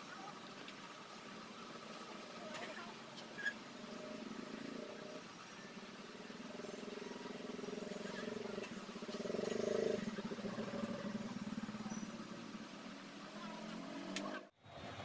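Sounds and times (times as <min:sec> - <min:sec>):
small engine running: 0:01.1 - 0:14.5.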